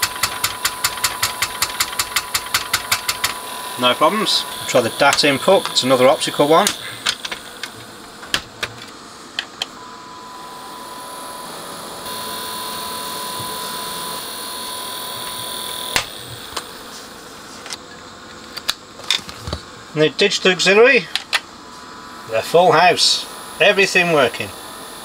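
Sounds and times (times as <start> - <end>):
small clicks: 0.0 - 3.4
faint steady test tone: 0.0 - 7.0, 9.8 - 16.4
steady hiss: 0.0 - 8.3, 22.2 - 25.0.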